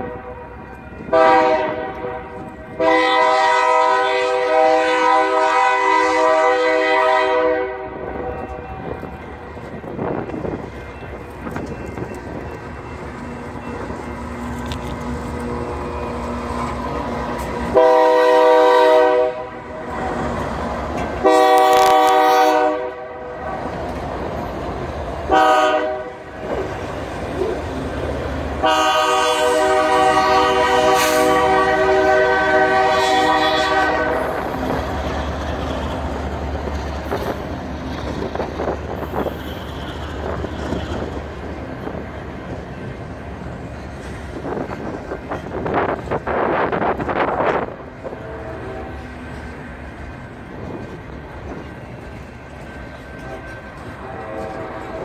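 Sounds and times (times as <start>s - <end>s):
diesel locomotive rumble: 0.0s - 55.0s
freight cars rolling on rails: 0.0s - 55.0s
locomotive air horn blasts: 1.1s - 8.9s, 17.6s - 20.2s, 21.2s - 23.4s, 25.3s - 26.3s, 28.6s - 34.5s, 48.0s - 49.2s, 53.2s - 55.0s.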